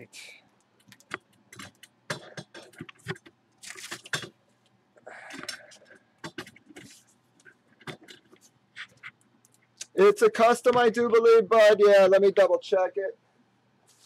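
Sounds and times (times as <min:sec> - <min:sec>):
clicks and knocks of objects: 0:00.8 - 0:04.4, 0:05.3 - 0:09.6.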